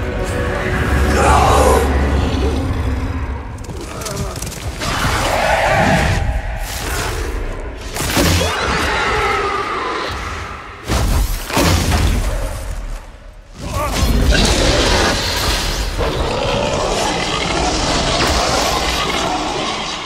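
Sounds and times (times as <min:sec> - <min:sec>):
orchestral score: 0:00.0 - 0:07.8.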